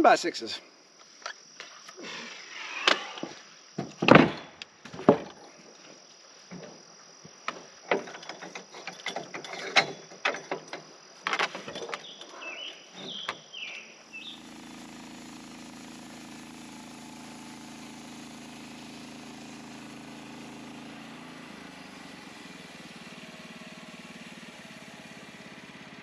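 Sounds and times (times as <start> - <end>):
boards and steel clattering: 2.8 - 5.5, 7.4 - 12.4
sawmill engine humming: 12.4 - 26.0.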